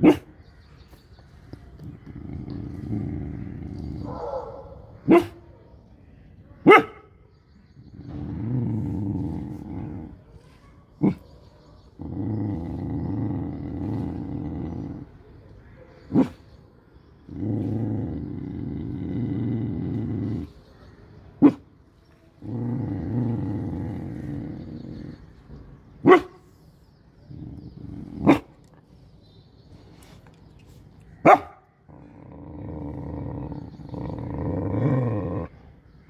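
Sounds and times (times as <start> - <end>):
dog barking: 0.0 - 0.3, 4.0 - 5.5, 6.6 - 7.1, 26.0 - 26.4, 31.2 - 31.7
dog growling: 1.7 - 4.3, 7.8 - 10.3, 11.8 - 15.4, 17.1 - 20.8, 22.3 - 25.6, 27.2 - 28.8, 31.8 - 35.9.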